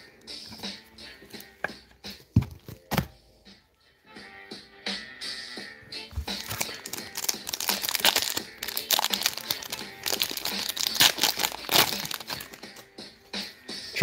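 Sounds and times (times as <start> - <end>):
foil wrapper crinkling and tearing: 6.4 - 12.8.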